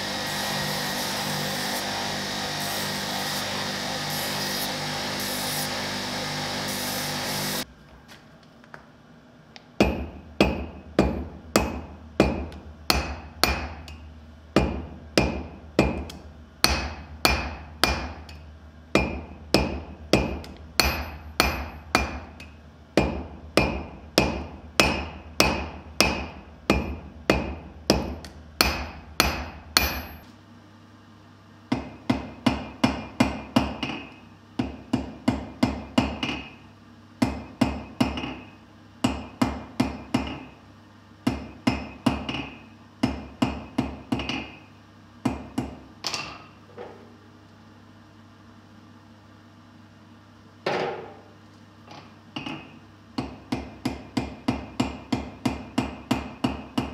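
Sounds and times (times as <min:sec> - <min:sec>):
hammer striking steel on anvil: 0:09.8 - 0:30.3, 0:31.7 - 0:36.6, 0:37.2 - 0:40.6, 0:41.2 - 0:44.7.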